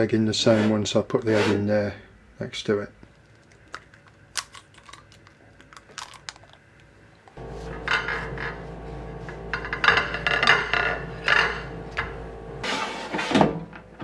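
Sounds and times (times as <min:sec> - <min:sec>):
low steady hum: 0:01.9 - 0:12.7.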